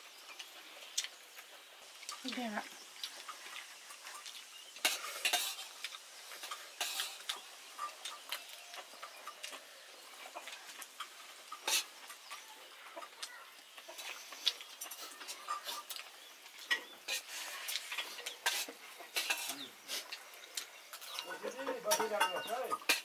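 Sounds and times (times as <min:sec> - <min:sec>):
utensils scraping dishware: 0:16.7 - 0:19.7, 0:21.0 - 0:23.0.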